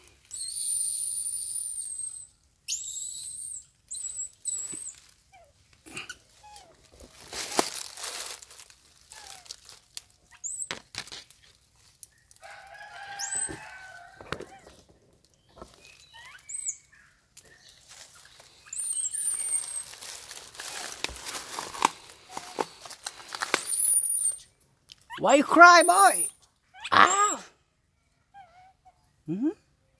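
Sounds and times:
baby monkey squealing: 0.3s - 5.5s, 10.3s - 10.7s, 13.2s - 13.8s, 16.0s - 17.0s, 18.6s - 20.0s, 23.6s - 24.4s, 25.1s - 27.5s, 28.4s - 28.9s
branches rustling and snapping: 4.7s - 5.8s, 6.6s - 16.1s, 17.3s - 18.6s, 19.2s - 23.8s
lower monkey call: 13.0s - 14.7s, 25.4s - 27.5s.

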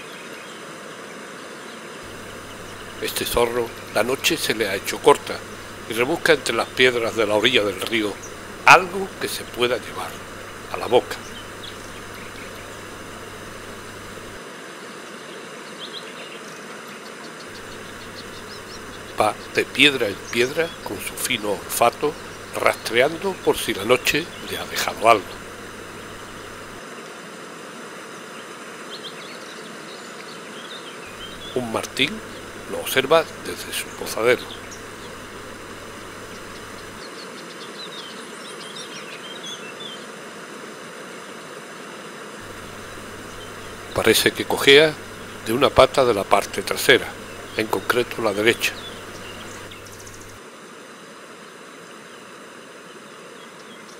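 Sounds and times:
river rushing: 2.0s - 14.4s, 17.5s - 26.8s, 31.1s - 37.0s, 42.4s - 50.4s
high bird chirps: 2.1s - 14.4s, 17.5s - 26.8s, 31.1s - 37.0s, 42.4s - 50.4s
wavering bird trill: 17.5s - 26.8s.

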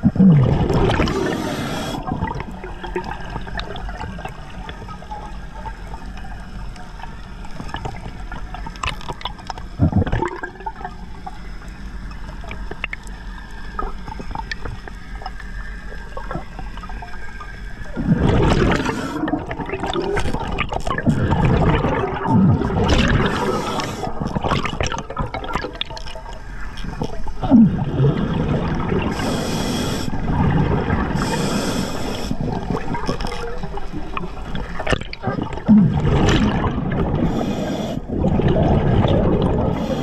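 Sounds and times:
exhaled bubbles gurgling underwater: 0.0s - 40.0s
hissing regulator inhalations: 0.9s - 2.1s, 18.5s - 19.4s, 23.2s - 24.3s, 29.1s - 30.3s, 31.1s - 32.8s, 37.2s - 38.1s, 39.7s - 40.0s.

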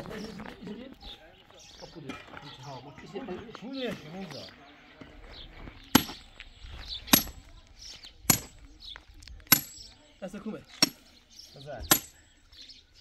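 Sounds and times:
sledgehammer striking metal stake: 6.0s - 6.2s, 7.1s - 7.4s, 8.3s - 8.5s, 9.5s - 9.9s, 10.8s - 11.0s, 11.8s - 12.2s.

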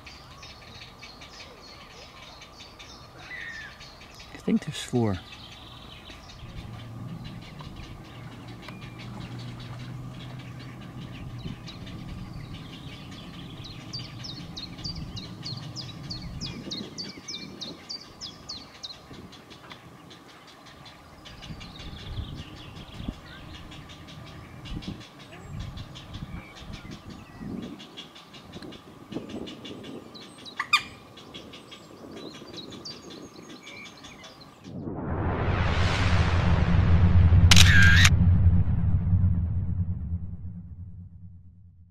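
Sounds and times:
heron chicks ticking calls: 2.3s - 33.2s
steady low rumble: 5.8s - 16.8s, 34.6s - 41.9s
whoosh: 34.6s - 41.9s.

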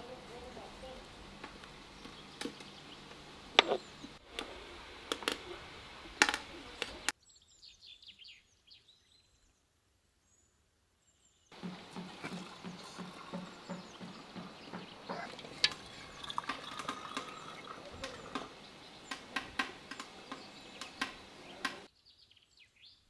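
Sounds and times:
birds chirping: 0.0s - 23.0s
juice pouring into a bottle: 11.6s - 14.4s, 15.3s - 18.6s
kitchen utensils clinking: 11.6s - 21.9s.

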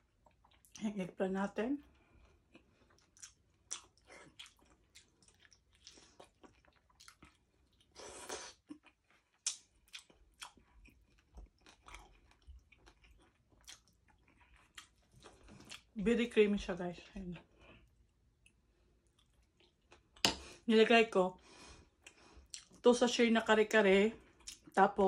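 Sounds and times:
person chewing and lip smacking: 0.0s - 0.8s, 2.1s - 15.9s, 17.8s - 20.6s, 21.9s - 22.8s, 24.3s - 24.8s.

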